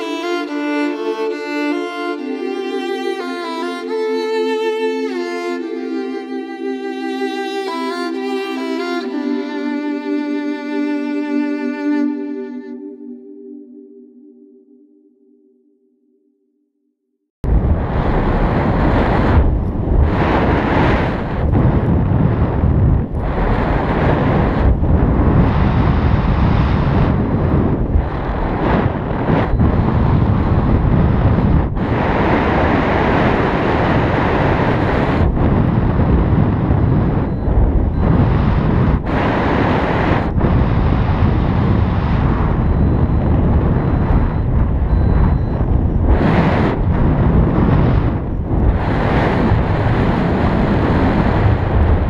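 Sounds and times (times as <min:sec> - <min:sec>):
wind buffeting microphone: 0:17.4 - 0:52.0.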